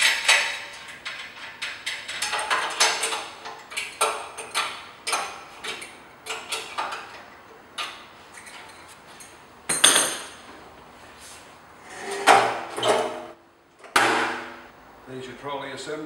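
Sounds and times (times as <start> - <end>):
metal clatter: 0.0 - 7.2.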